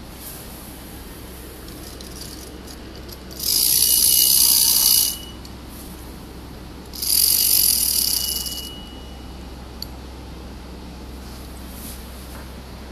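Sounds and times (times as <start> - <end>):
clockwork motor whirring: 1.8 - 5.5, 6.9 - 8.9.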